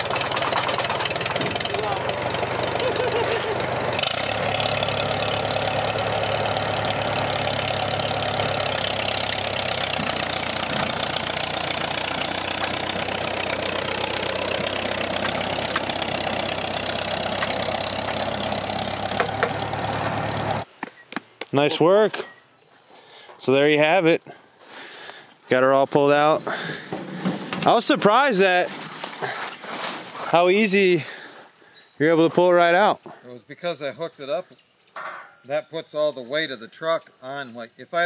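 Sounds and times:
tractor engine running under load: 0:00.0 - 0:20.7.

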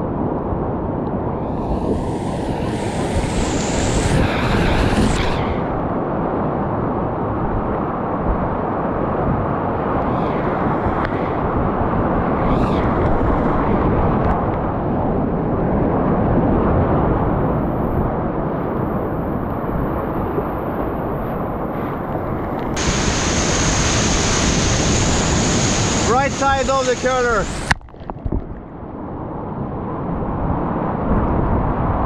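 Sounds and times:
whitewater rapids rushing: 0:22.8 - 0:27.7.

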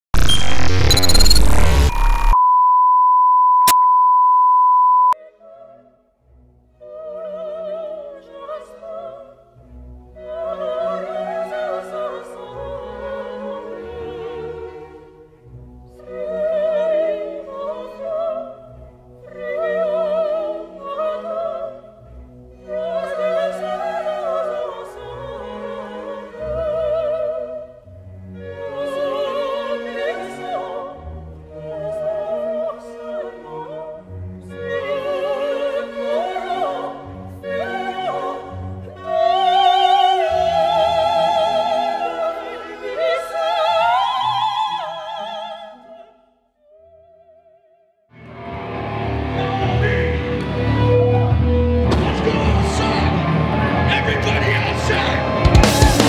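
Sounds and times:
steady beep tone: 0:00.1 - 0:05.2
operatic singing with classical music: 0:05.2 - 0:47.6, 0:49.3 - 0:56.0.

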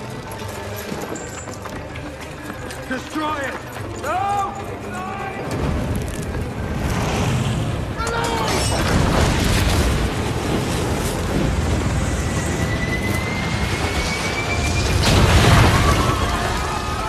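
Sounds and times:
fire rumble: 0:05.4 - 0:17.0
rising whistle: 0:12.0 - 0:17.0
loud explosion blast: 0:14.8 - 0:16.7.

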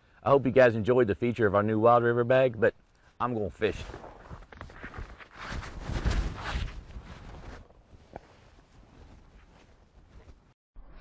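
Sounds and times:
fabric backpack rustling: 0:03.8 - 0:10.6.

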